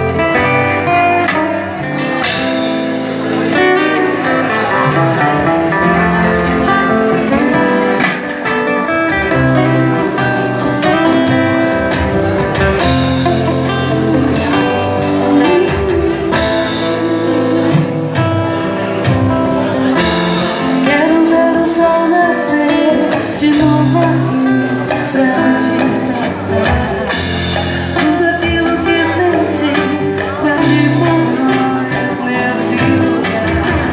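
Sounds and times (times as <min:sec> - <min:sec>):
drums: 0:00.0 - 0:33.9
strummed acoustic guitars: 0:00.0 - 0:33.9
woman singing: 0:13.5 - 0:18.2, 0:20.6 - 0:27.3, 0:27.9 - 0:33.9.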